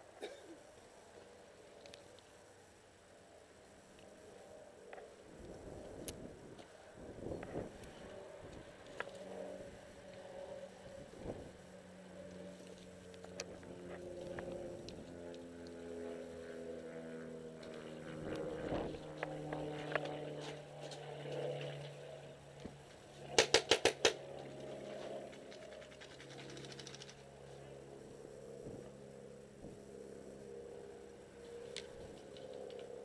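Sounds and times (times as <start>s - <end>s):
paintball marker shots: 23.4s - 24.2s.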